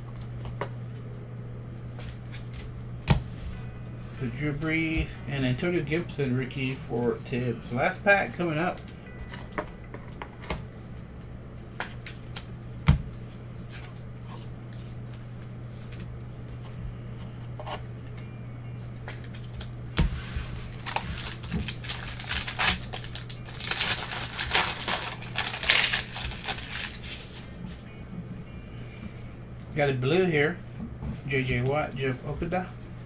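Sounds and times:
card pack wrapper crinkling and tearing: 20.6 - 27.4.

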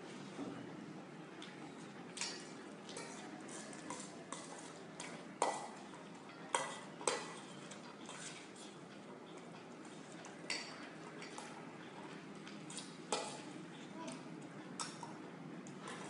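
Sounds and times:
metal bowl clinking: 2.2 - 5.8.

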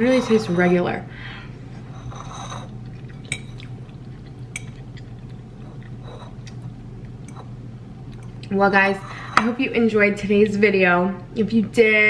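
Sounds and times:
fork scraping ceramic bowl: 0.0 - 0.9, 1.9 - 3.6, 5.6 - 6.5, 8.9 - 9.6
low steady hum: 0.0 - 12.0
quiet chewing: 2.6 - 8.5.

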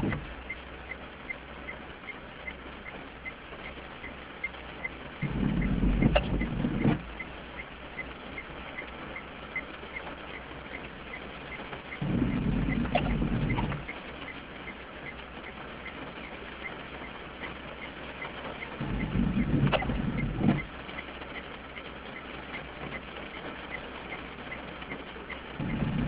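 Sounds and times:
faint regular ticking: 0.0 - 26.0
rain patter on car: 0.0 - 26.0
windscreen wiper swish: 2.4 - 26.0
wiper click: 5.2 - 7.7, 12.0 - 14.0, 18.8 - 20.7.

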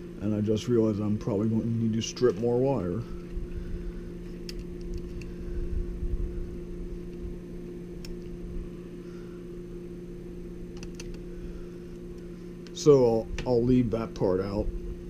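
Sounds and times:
low electrical hum: 0.0 - 15.0
low rumble: 4.9 - 8.8.

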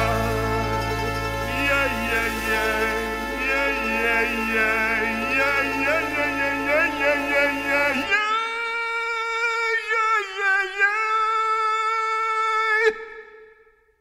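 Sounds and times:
orchestra playing: 0.0 - 8.1
person singing a long note: 0.0 - 9.8.

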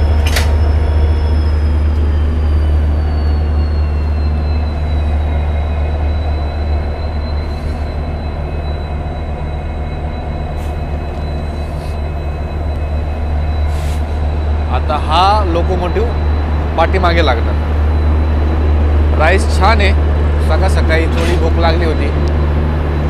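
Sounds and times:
diesel locomotive idling: 0.0 - 23.0
faint short hisses: 13.7 - 14.1.

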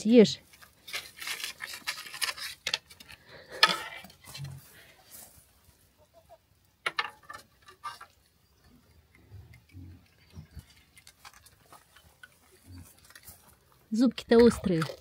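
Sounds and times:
animal crunching a hard biscuit: 0.6 - 3.6.

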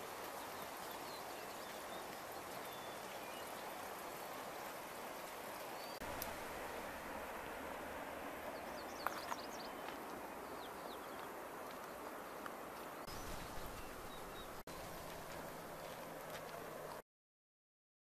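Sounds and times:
steady rushing hiss: 0.0 - 17.0
high bird chirps: 13.0 - 14.9.

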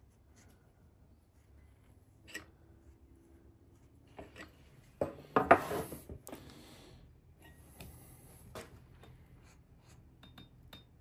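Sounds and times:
tools clicking and tapping: 10.1 - 11.0.

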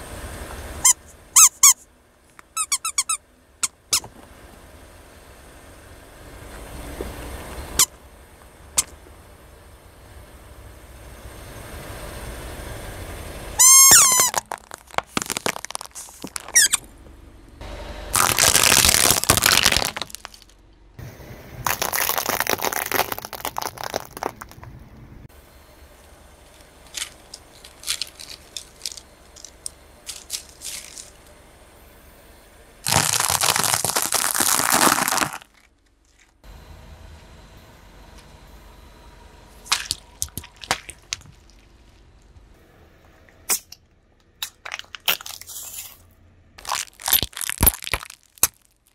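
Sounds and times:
tyre crunching brittle objects: 13.7 - 16.9, 18.2 - 20.6, 21.7 - 24.7, 26.4 - 31.3, 32.8 - 36.4, 39.7 - 42.0, 44.4 - 46.0, 46.6 - 48.9.

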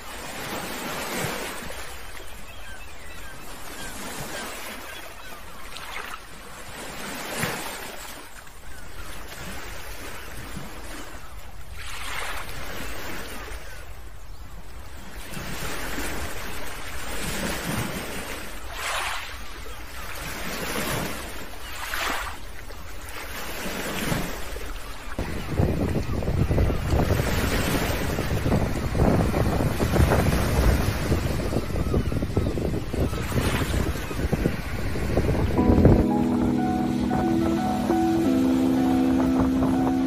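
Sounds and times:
small waves breaking in surf: 0.0 - 40.0
wind rumble on microphone: 25.2 - 36.6.

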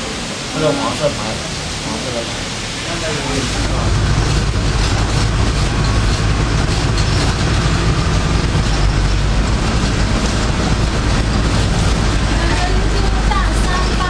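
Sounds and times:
bus engine rumbling: 0.0 - 14.0
road and cabin noise: 0.0 - 14.0.

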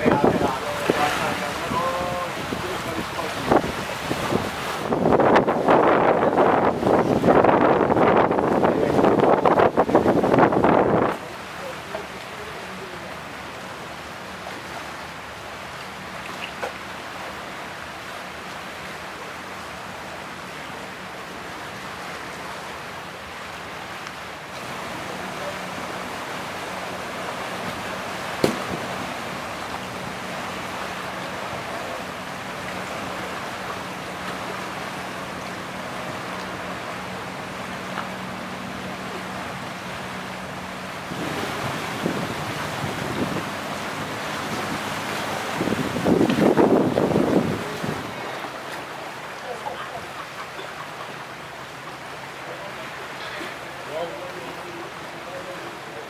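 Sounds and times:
waves washing: 0.0 - 56.0
wind noise: 2.4 - 11.2, 41.1 - 48.3.

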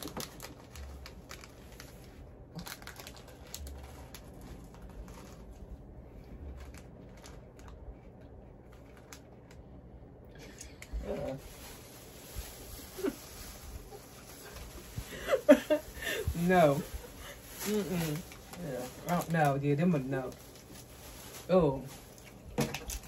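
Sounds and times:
plastic wrappers crinkling: 0.0 - 9.6, 11.1 - 23.0.

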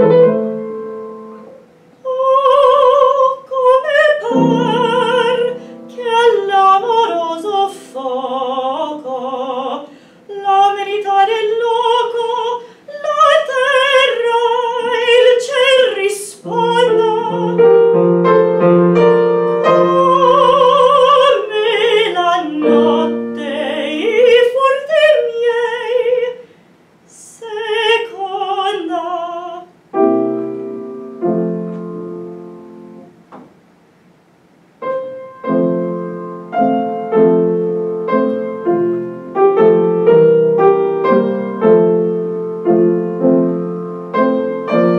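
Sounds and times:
piano accompaniment: 0.0 - 25.9, 28.0 - 33.7, 34.8 - 44.9
woman singing operatically: 2.0 - 17.9, 19.6 - 26.4, 27.1 - 29.8.

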